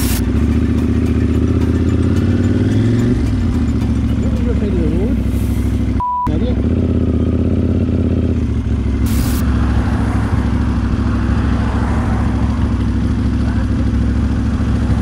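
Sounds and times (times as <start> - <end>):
motorcycle engine running: 0.0 - 15.0
short burst of hiss: 9.1 - 9.4.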